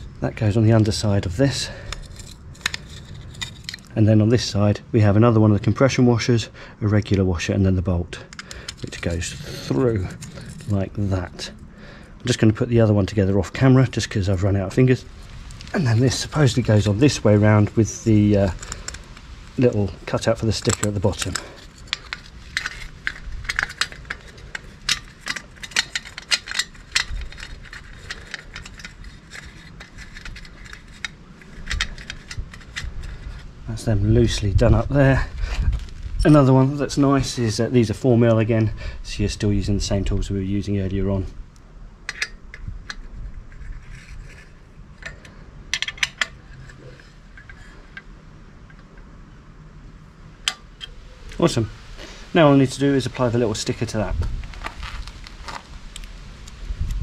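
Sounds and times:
metal heat shield clicks and scrapes: 0.8 - 4.0, 8.1 - 11.6, 13.0 - 33.6, 42.0 - 49.1.

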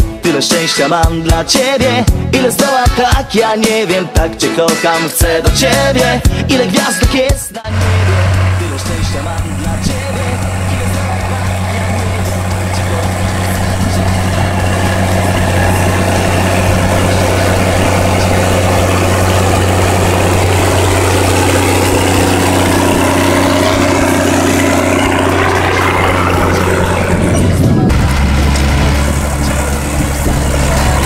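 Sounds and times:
tractor diesel engine droning: 7.6 - 31.0
higher steady tone: 7.7 - 31.0.

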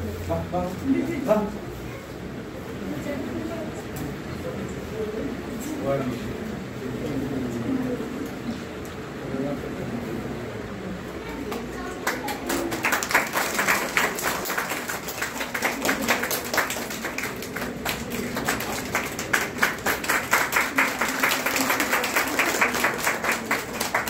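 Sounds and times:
people clapping: 11.3 - 24.0.

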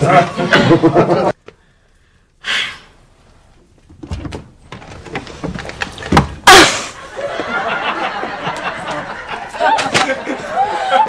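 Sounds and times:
people laughing: 0.0 - 1.4, 7.0 - 11.0.

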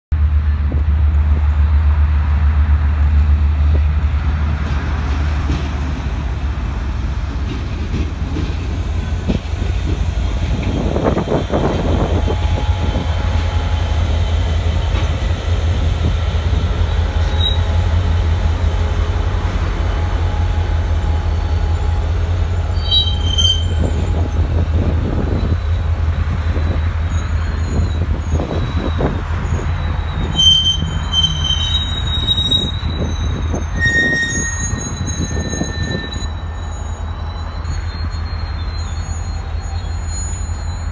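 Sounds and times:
locomotive engine rumble: 0.1 - 40.9
train wheel squeals: 16.4 - 18.3, 19.9 - 40.9.

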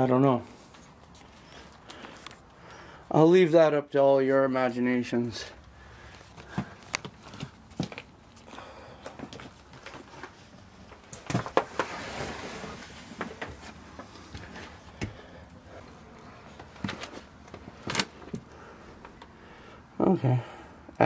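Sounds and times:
rustling: 5.4 - 19.7.

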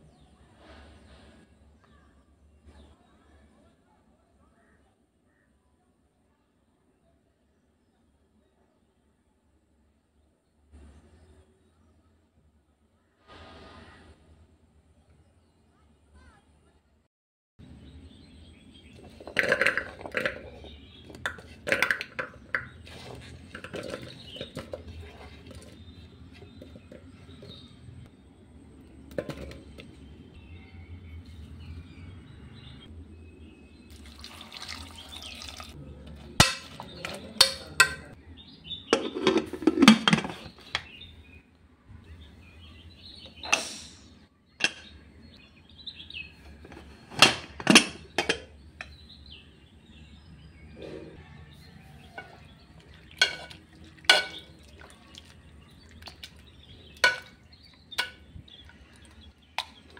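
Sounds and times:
short hiss: 13.2 - 14.0
pot and lid handled: 18.9 - 27.8, 29.1 - 29.9, 36.4 - 38.2, 38.9 - 40.9, 46.6 - 49.0, 52.1 - 55.0, 56.9 - 59.9
vegetables dropping into pot: 19.0 - 25.7, 56.0 - 59.9.

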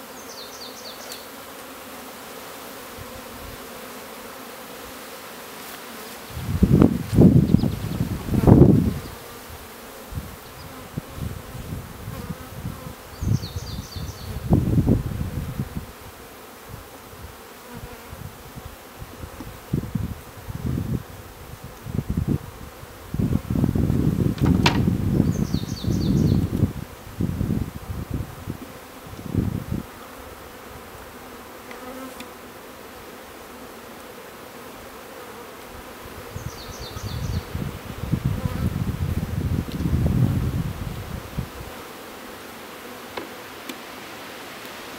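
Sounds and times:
bees buzzing: 0.0 - 44.9
low bumps and rustles: 23.8 - 25.3.

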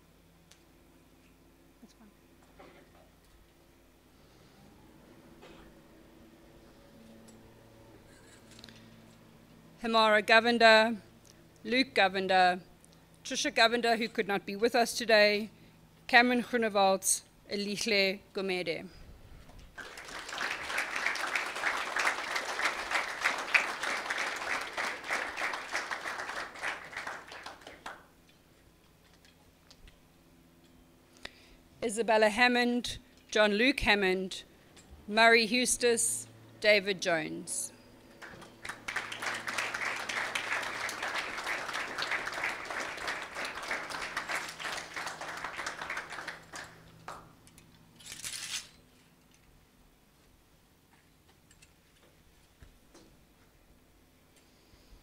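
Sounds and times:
audience applauding: 19.7 - 28.1, 38.1 - 47.4.

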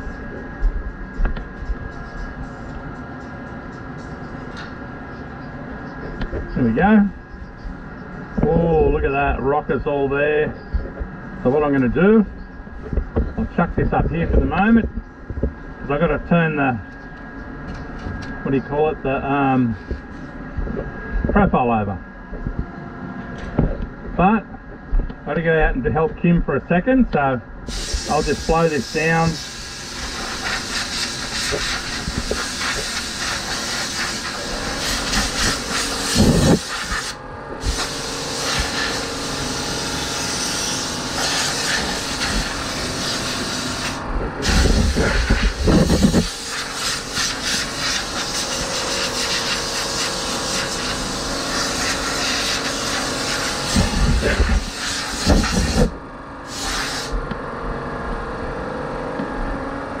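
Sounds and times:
compressed air blow gun hissing: 27.7 - 57.2
gusty low rumbles: 44.0 - 46.4.

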